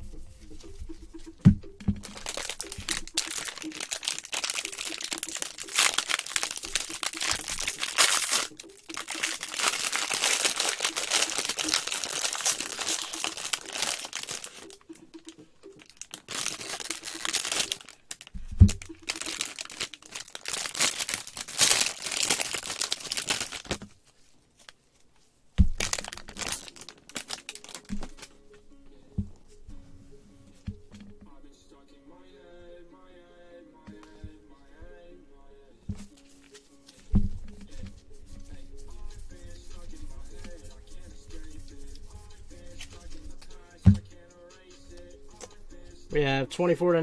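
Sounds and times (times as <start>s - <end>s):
foil wrapper crinkling and tearing: 2.0s - 14.8s, 15.8s - 24.0s, 25.7s - 28.3s.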